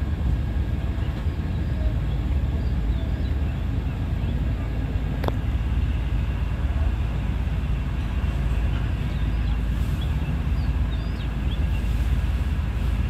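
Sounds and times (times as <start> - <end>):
boat engine drone: 0.0 - 13.0.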